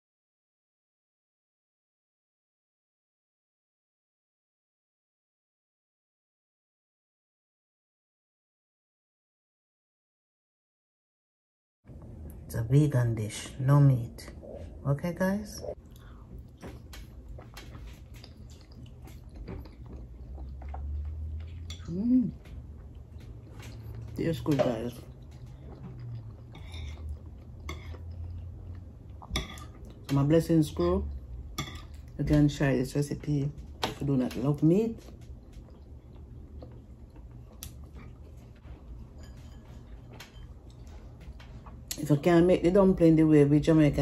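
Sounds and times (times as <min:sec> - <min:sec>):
person chewing food: 0:15.7 - 0:30.1, 0:31.1 - 0:32.2, 0:35.0 - 0:42.0.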